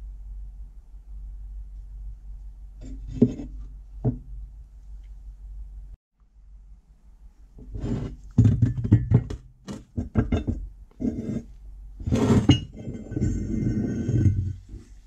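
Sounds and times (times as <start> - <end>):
metal grating scrape: 7.6 - 8.2, 11.0 - 15.0.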